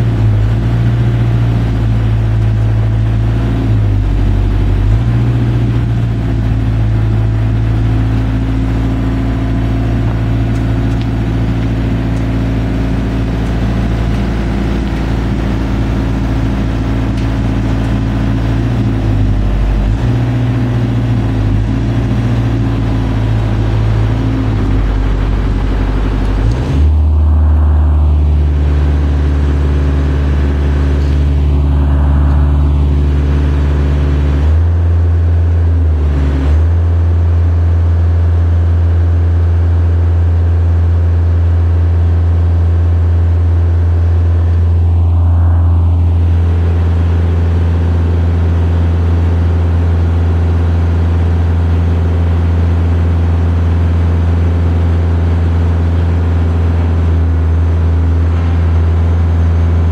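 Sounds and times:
boom lift engine running: 0:00.0 - 0:59.9.

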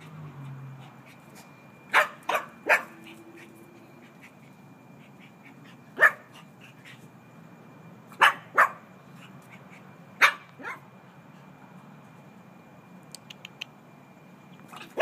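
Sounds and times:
puppy barking: 0:01.9 - 0:03.2, 0:06.0 - 0:06.4, 0:08.2 - 0:08.8, 0:10.2 - 0:10.9.

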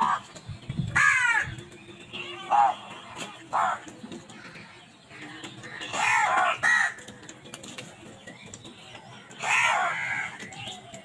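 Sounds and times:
crows cawing: 0:01.0 - 0:01.6, 0:05.2 - 0:07.0.

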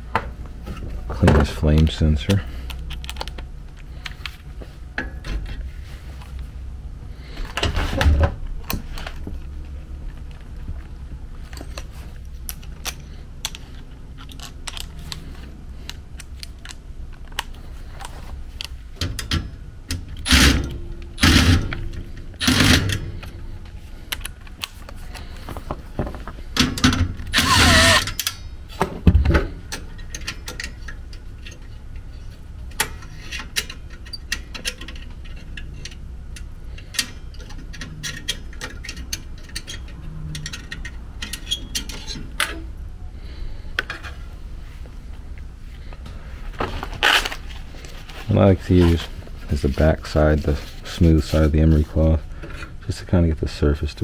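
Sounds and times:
low steady hum: 0:00.0 - 0:54.0
cordless drill whirring: 0:27.3 - 0:28.1
tools and sheet metal clattering: 0:36.8 - 0:42.7.

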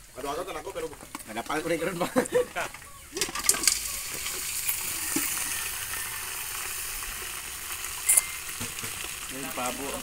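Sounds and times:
meat sizzling in oil: 0:03.2 - 0:10.0
meat splashing into hot oil: 0:03.2 - 0:10.0.

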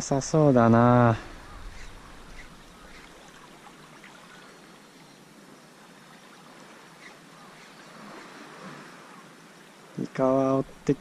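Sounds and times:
water lapping against rocks: 0:01.1 - 0:04.8, 0:06.2 - 0:09.3
soft splashes: 0:01.1 - 0:05.1.

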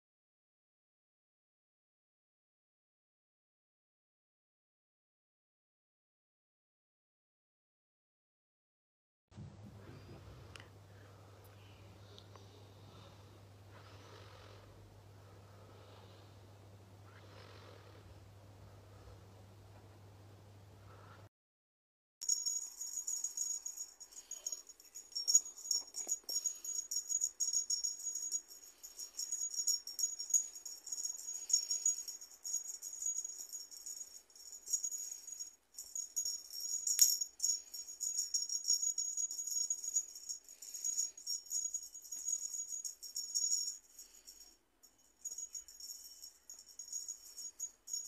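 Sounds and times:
small jingle bell jingling: 0:22.2 - 0:48.0.

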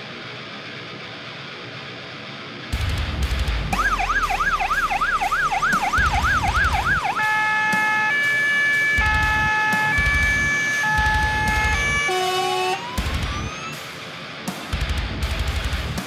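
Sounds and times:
low rumble: 0:02.8 - 0:04.6
fire engine siren: 0:03.8 - 0:13.8.

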